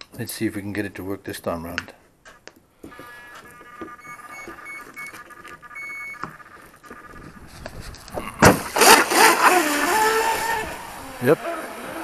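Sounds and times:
motor start-up tones and beeps: 3.0 - 7.4.

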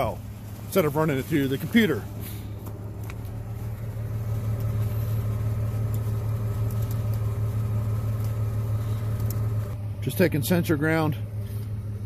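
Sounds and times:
low mechanical motor hum: 0.0 - 12.0.

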